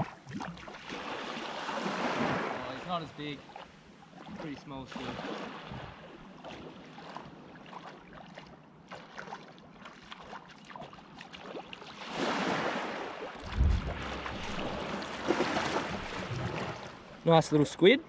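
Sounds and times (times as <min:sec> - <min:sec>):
footsteps wading through water: 0:00.0 - 0:17.2
small waves lapping: 0:00.0 - 0:18.0
low thump: 0:13.4 - 0:16.7.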